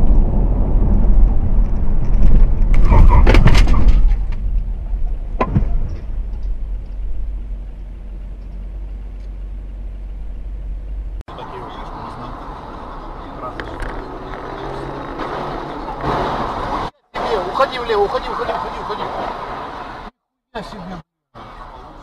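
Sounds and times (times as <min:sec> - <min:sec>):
sharp bangs and crunches: 0:00.0 - 0:07.2, 0:15.1 - 0:16.9
car rumbling on road: 0:00.0 - 0:22.0.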